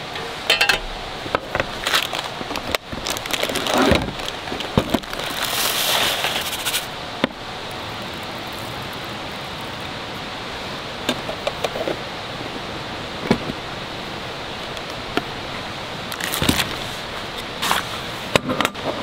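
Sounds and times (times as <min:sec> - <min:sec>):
steady background hiss: 0:00.0 - 0:19.0
rice pouring into metal tin: 0:05.2 - 0:06.9.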